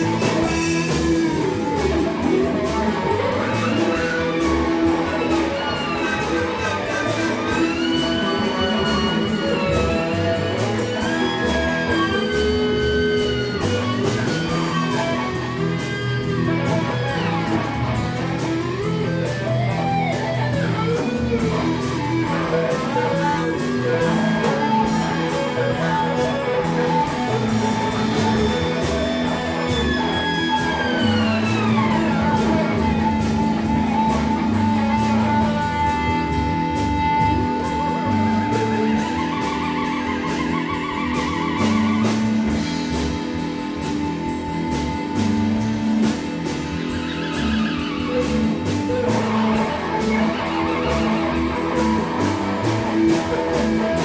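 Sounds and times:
band jamming with guitar: 0.0s - 54.0s
theremin sliding melody: 0.0s - 54.0s.

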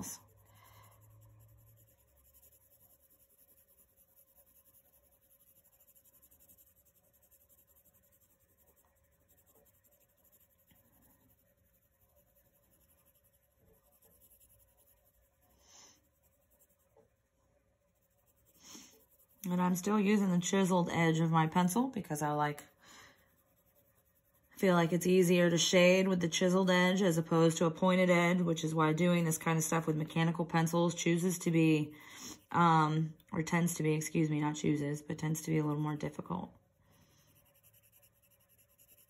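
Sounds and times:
pencil scratching on paper: 0.0s - 17.2s, 17.8s - 32.9s, 36.9s - 39.0s.

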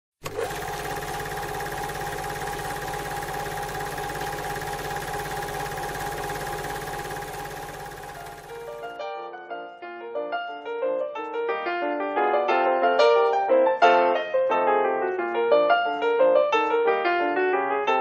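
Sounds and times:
film projector running: 0.2s - 9.0s.

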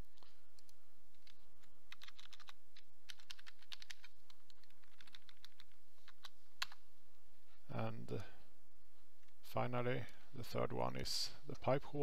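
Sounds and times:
typing on keyboard: 0.6s - 6.8s.

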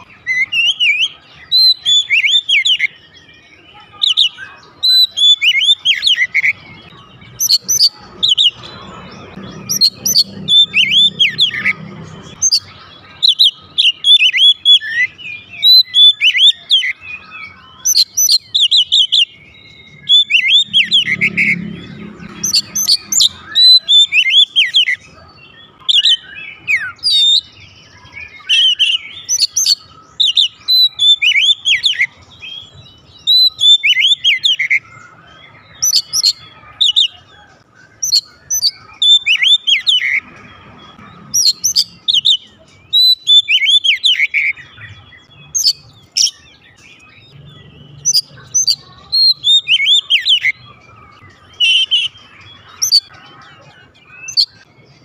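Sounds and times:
bird singing whistled notes: 0.0s - 55.0s.

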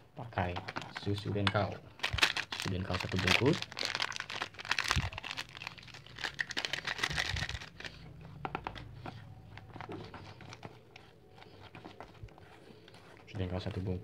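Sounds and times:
foil sachet crinkling: 1.9s - 8.0s.

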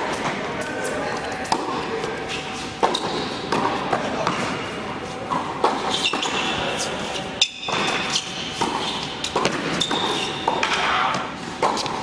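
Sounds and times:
tennis shoes squeaking: 2.2s - 4.5s, 5.3s - 12.0s
tennis ball bouncing on hard court: 2.8s - 4.6s, 7.4s - 12.0s
tennis racket strikes: 5.3s - 12.0s.

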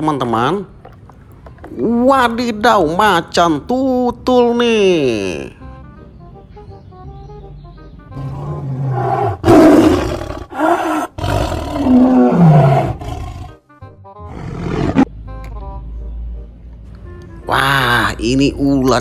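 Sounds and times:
light background music: 0.0s - 10.4s, 11.4s - 19.0s
big cat roaring and growling: 8.2s - 13.6s, 14.3s - 15.1s.

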